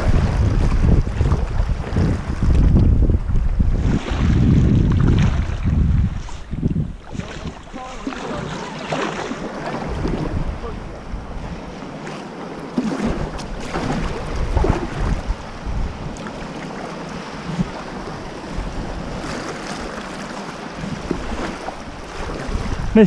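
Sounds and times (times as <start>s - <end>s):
wind buffeting microphone: 0.0s - 23.0s
sea water splashing on rocks: 3.8s - 5.9s.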